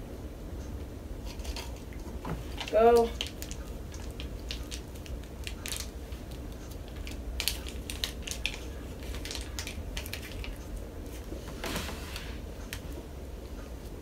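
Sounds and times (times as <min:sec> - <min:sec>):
plastic packet crinkling: 0:02.5 - 0:10.8.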